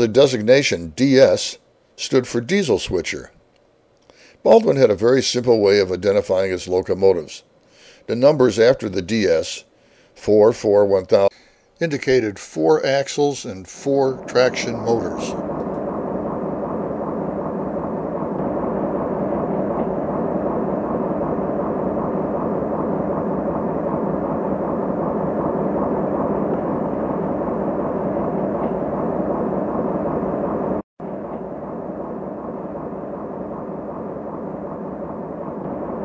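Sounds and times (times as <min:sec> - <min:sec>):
diesel locomotive running: 0:13.3 - 0:36.0.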